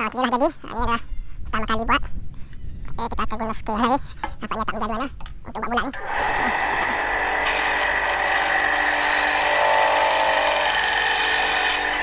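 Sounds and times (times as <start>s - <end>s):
motor hum: 5.9s - 12.0s
band saw cutting wood: 6.0s - 12.0s.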